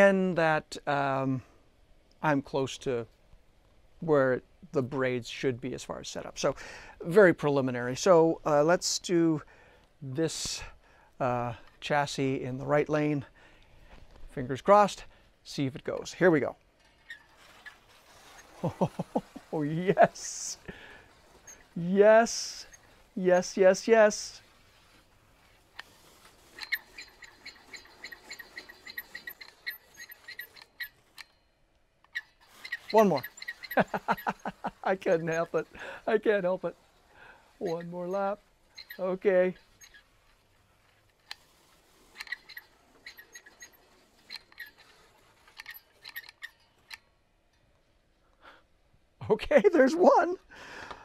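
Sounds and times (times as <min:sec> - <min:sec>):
slot car squeaky chirps: 0:26.0 - 0:31.2, 0:32.1 - 0:36.7, 0:37.6 - 0:40.2, 0:41.8 - 0:46.6.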